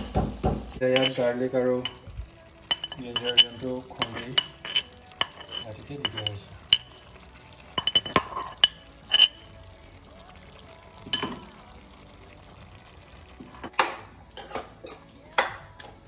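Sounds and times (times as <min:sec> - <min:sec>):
food sizzling: 0:00.0 - 0:16.0
utensil scraping frying pan: 0:00.8 - 0:09.6, 0:13.5 - 0:15.2
utensil clinking: 0:00.8 - 0:12.1.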